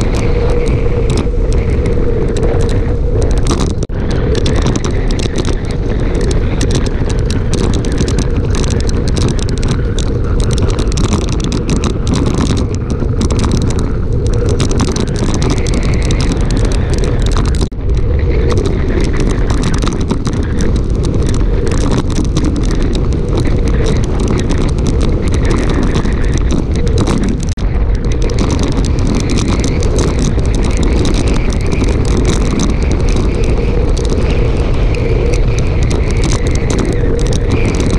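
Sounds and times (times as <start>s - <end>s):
wind rushing over microphone: 0.0s - 37.9s.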